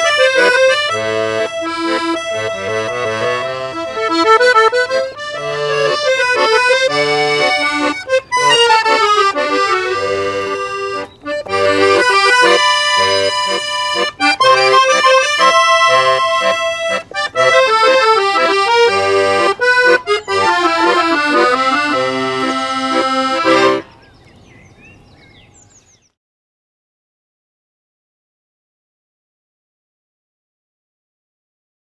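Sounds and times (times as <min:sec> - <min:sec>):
accordion waltz duet: 0:00.0 - 0:24.0.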